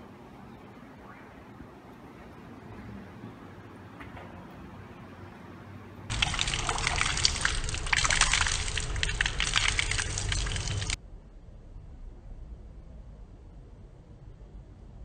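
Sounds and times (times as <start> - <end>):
tap water splashing on hands: 6.1 - 11.0.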